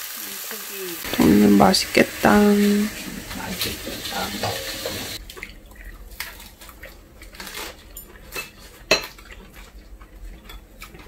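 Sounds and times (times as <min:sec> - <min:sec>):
metal utensils clinking on bowls: 0:01.1 - 0:05.2.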